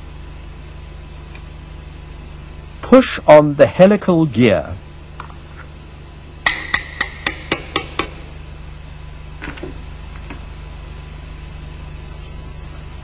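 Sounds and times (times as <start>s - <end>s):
low steady hum: 0.0s - 13.0s
sharp metallic taps: 6.4s - 8.2s.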